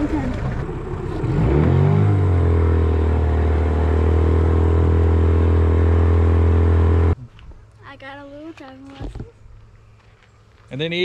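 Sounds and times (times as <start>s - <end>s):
small outboard motor running: 0.0s - 7.2s.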